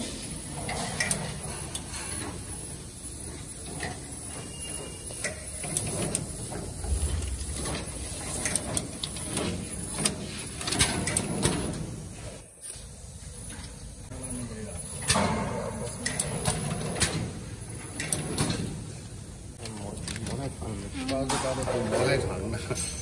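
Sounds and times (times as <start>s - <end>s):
wrapping machine clatter: 19.6s - 22.3s.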